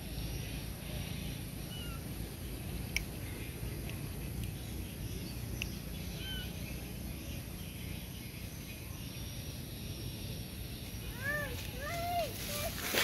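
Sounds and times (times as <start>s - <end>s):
low outdoor rumble: 0.0s - 13.0s
baby monkey squeaking: 1.7s - 2.0s, 6.1s - 6.6s.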